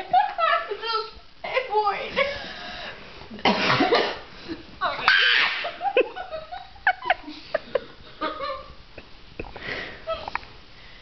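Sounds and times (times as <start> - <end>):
girls giggling: 4.4 - 10.4.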